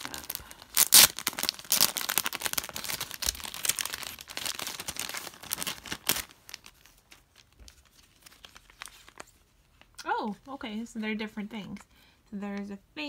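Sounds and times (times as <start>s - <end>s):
plastic wrapping crinkling: 0.0s - 10.4s.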